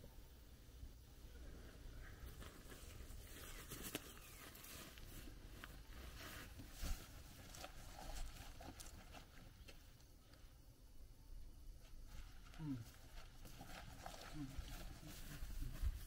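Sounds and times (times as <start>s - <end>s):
dry hay rustling and crackling: 11.9s - 16.0s.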